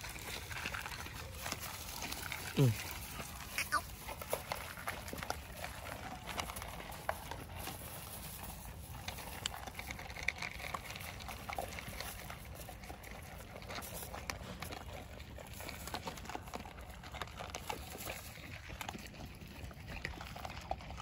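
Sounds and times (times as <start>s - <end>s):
dogs crunching dry kibble: 0.0s - 21.0s.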